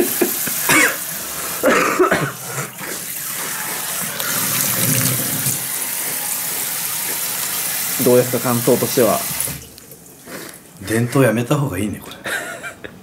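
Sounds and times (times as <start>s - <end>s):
person coughing: 0.6s - 1.0s, 1.6s - 3.0s.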